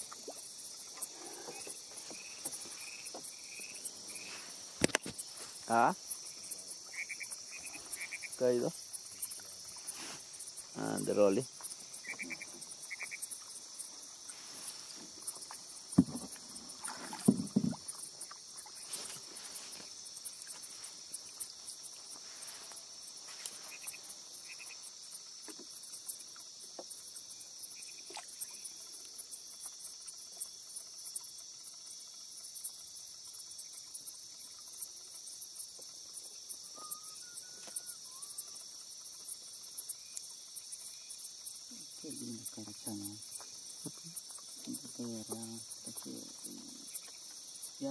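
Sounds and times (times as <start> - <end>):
night insects chorus: 0.0 - 47.9
soft water splashes: 15.3 - 19.8
sharp knocks: 16.0 - 16.4.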